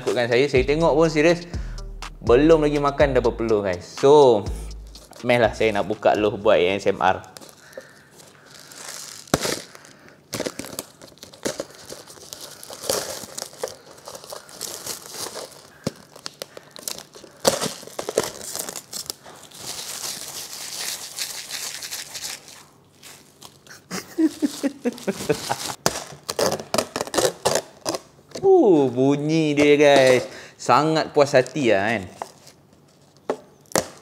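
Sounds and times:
plastic wrap crinkling: 5.1 - 28.2, 31.2 - 34.0.

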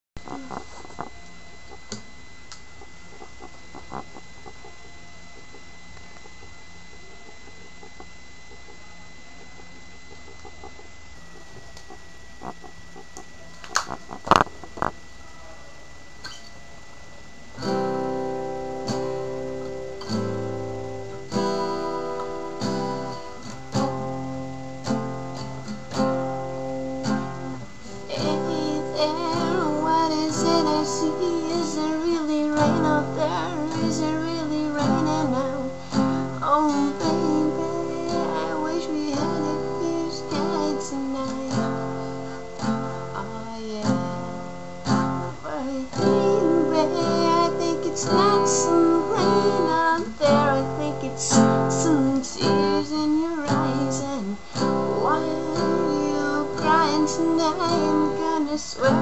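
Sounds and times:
acoustic guitar chords: 17.3 - 59.0
woman singing: 27.9 - 41.8, 43.1 - 44.2, 45.4 - 59.0.

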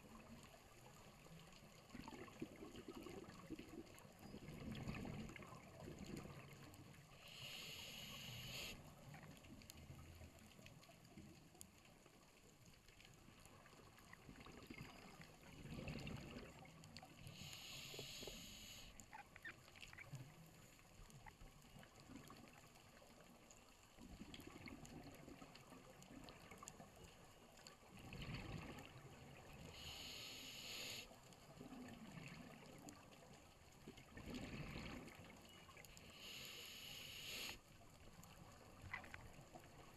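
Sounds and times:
gurgles of exhaled bubbles: 1.9 - 6.6, 14.2 - 16.6, 27.9 - 29.5, 33.9 - 35.4
scuba regulator inhalation hiss: 7.2 - 8.8, 17.2 - 19.0, 29.7 - 31.2, 36.0 - 37.6.

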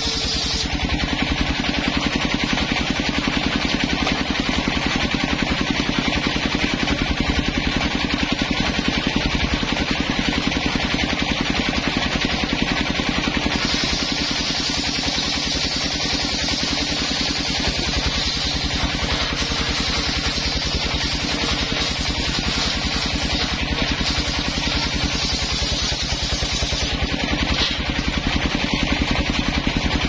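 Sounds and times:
saw cutting hiss: 0.0 - 0.8, 13.5 - 27.1
circular saw droning: 0.0 - 5.1, 13.4 - 28.3.

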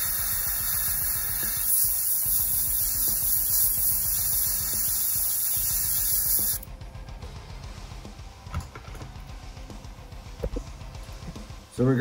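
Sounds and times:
airbrush hiss: 0.0 - 6.7.

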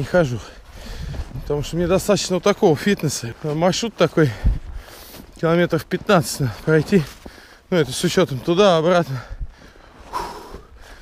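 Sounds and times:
footsteps crunching in snow: 0.0 - 11.0
man breathing hard: 0.5 - 1.3, 4.3 - 5.3, 7.2 - 7.7, 9.1 - 11.0.

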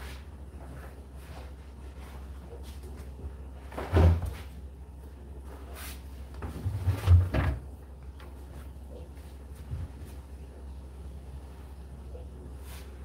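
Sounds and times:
clothes thudding in dryer drum: 3.0 - 4.8, 6.3 - 8.8.

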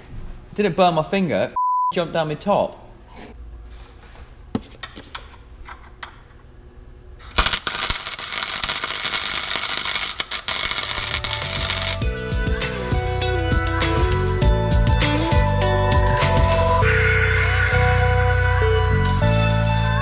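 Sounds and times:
welder arc crackling: 7.2 - 12.1.

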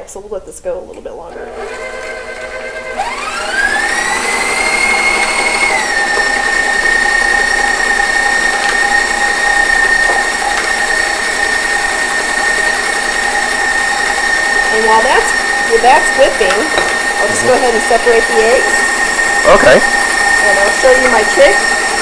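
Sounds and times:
stand mixer motor whine: 1.4 - 22.0
whisk whipping butter: 1.5 - 22.0.

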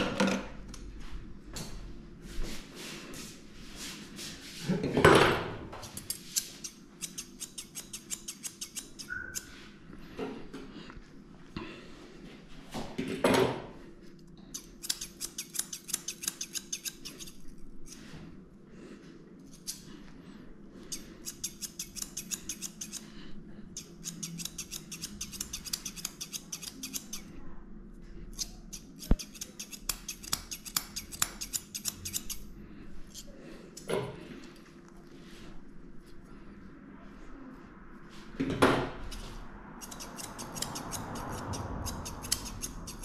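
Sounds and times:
scissors snipping dog fur: 5.8 - 9.6, 14.5 - 18.1, 19.4 - 20.0, 20.8 - 27.3, 28.3 - 34.7, 39.0 - 43.0.

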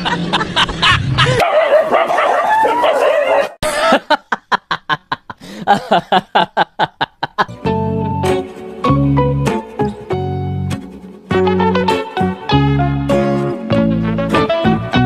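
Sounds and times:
dog yelping and whining: 1.4 - 3.6.

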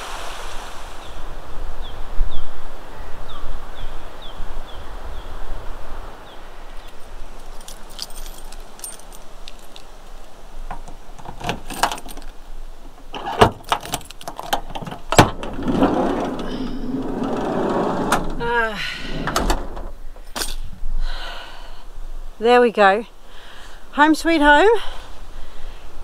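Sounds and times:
rushing noise: 0.0 - 1.8
keys jangling: 6.8 - 12.4, 13.2 - 15.2
door knocks and clunks: 13.1 - 18.5, 19.1 - 20.0.

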